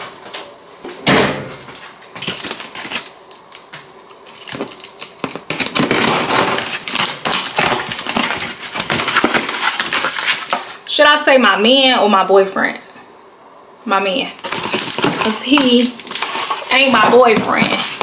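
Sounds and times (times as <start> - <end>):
cardboard box scraping and rustling: 14.4 - 18.0.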